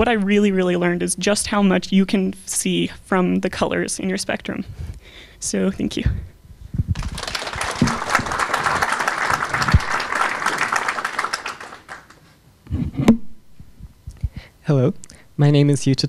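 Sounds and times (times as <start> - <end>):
audience applauding: 7.0 - 12.2.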